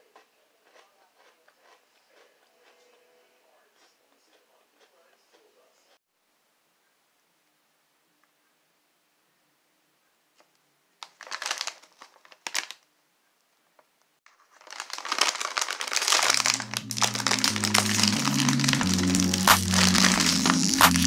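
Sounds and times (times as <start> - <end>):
plastic bag crinkling: 11.0 - 12.8, 14.3 - 21.0
background music: 16.0 - 21.0.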